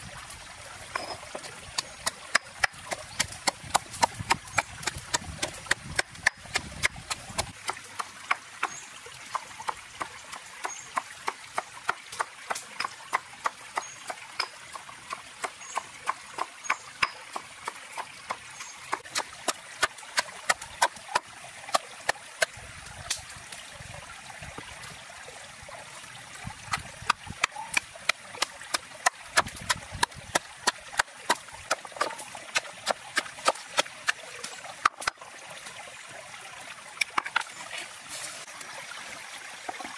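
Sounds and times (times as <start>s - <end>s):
pestle pounding in stone mortar: 0.9s - 8.1s, 26.7s - 34.2s.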